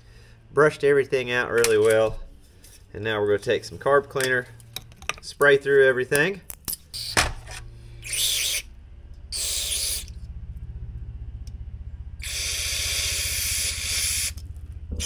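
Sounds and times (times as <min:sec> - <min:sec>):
steady low hum: 0:00.0 - 0:15.0
aerosol spray hissing: 0:09.4 - 0:10.1, 0:12.2 - 0:14.4.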